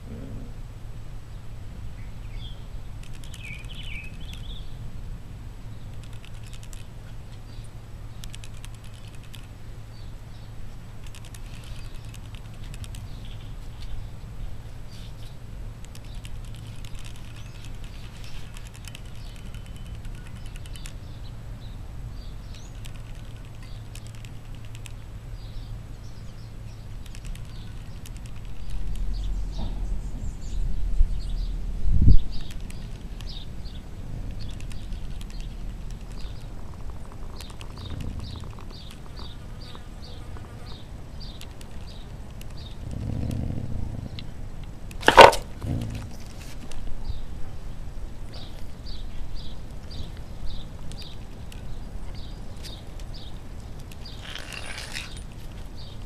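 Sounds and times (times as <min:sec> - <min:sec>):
low hum: 0:24.8 - 0:40.1
cat crunching dry kibble: 0:44.9 - 0:46.8.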